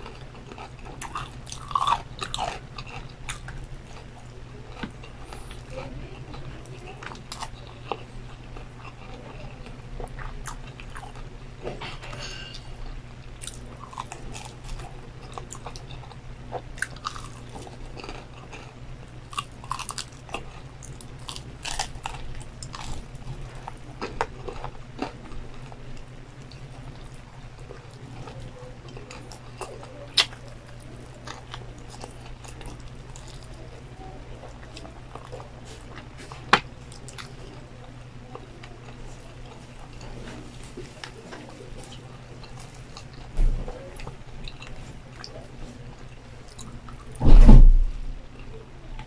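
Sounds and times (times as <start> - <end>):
crunchy chewing of fried chicken: 0.0 - 47.2
steady low hum: 0.0 - 49.0.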